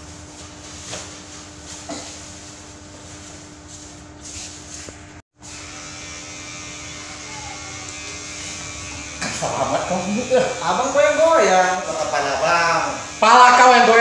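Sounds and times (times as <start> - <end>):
electric hair clippers buzzing: 4.7 - 14.0.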